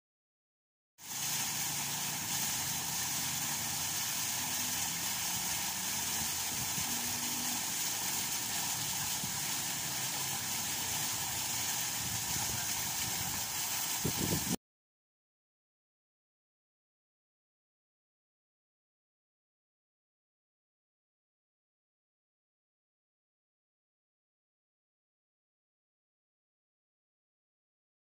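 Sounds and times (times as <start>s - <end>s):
fountain water splashing into pool: 1.0s - 14.6s.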